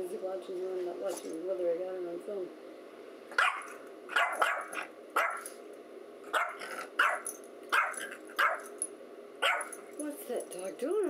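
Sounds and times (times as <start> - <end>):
small dog barking: 3.3 - 5.6, 6.3 - 8.7, 9.4 - 9.8.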